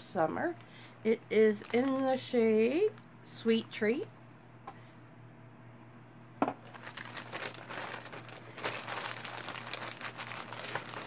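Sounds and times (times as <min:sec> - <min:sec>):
packaging crinkling: 0:01.5 - 0:02.3, 0:06.6 - 0:11.0.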